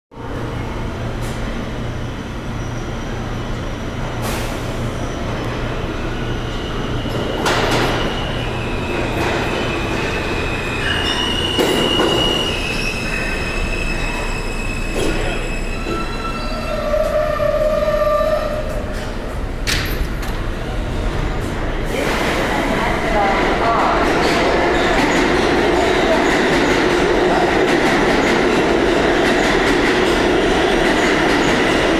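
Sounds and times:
train wheels rumbling on rails: 0.3s - 31.9s
wheel and brake squeal: 6.5s - 18.7s.

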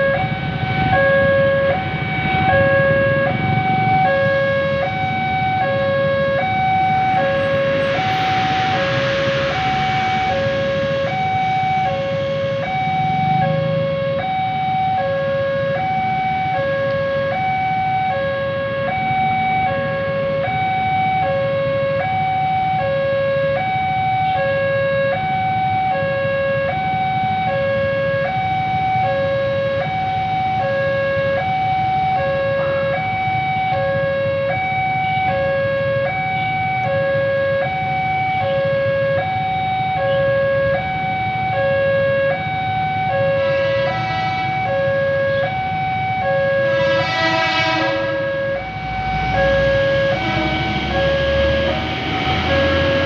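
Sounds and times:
idling engines rumbling: 0.0s - 21.2s, 40.1s - 53.0s
level crossing two-tone alarm: 0.0s - 53.0s.

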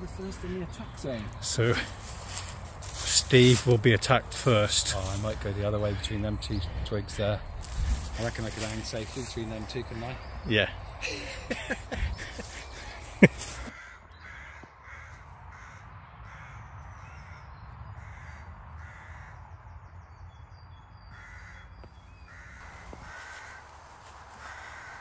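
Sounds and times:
crows cawing: 0.4s - 3.6s, 7.6s - 10.4s, 11.0s - 19.7s, 21.0s - 25.0s.

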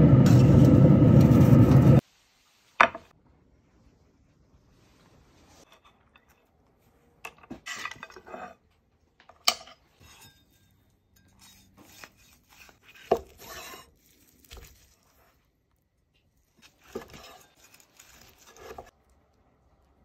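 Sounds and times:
knife scraping through meat: 11.2s - 15.4s, 16.5s - 18.9s.

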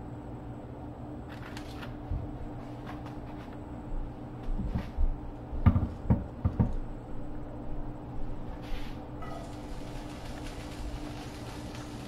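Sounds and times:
low kitchen hum: 0.0s - 12.0s
knocks on wooden cutting board: 5.6s - 6.7s
broccoli rustling: 8.7s - 12.0s.

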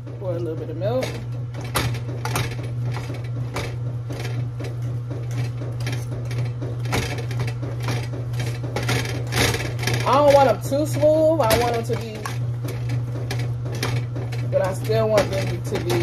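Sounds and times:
utensil mashing potatoes in pot: 0.0s - 16.0s
washing machine humming: 0.0s - 16.0s.

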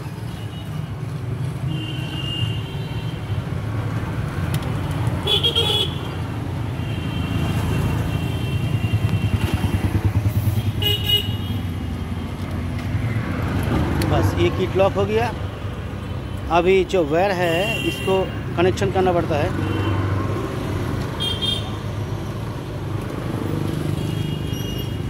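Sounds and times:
vehicle engines running: 7.4s - 17.2s.

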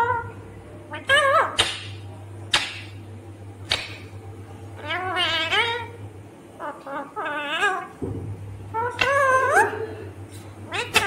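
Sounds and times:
parakeet warbling calls: 0.0s - 1.9s, 4.8s - 6.0s, 6.6s - 8.0s, 8.7s - 9.8s, 10.7s - 11.0s.

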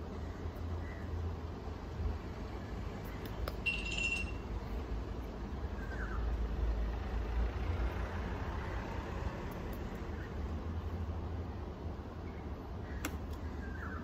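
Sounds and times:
high clear ringing tone: 3.6s - 4.6s.

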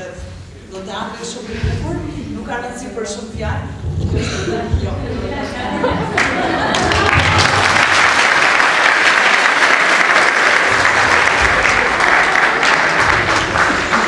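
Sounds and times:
audience applauding: 6.1s - 14.0s.

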